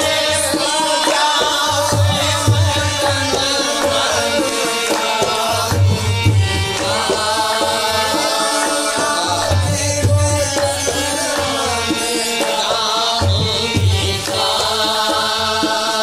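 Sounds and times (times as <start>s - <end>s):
tabla drumming: 0.0s - 16.0s.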